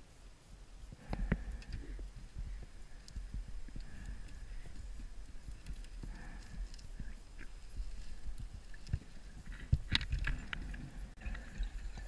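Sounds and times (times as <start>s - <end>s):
faint underwater clicks: 0.9s - 12.0s
underwater knocks and rumbles: 2.0s - 12.0s.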